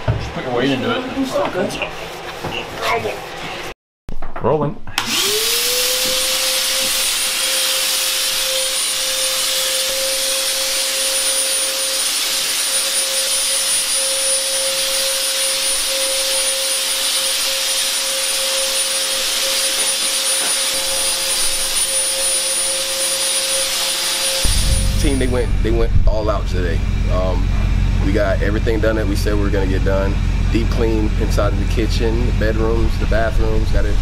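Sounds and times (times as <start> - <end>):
fogger motor humming: 5.1 - 34.0.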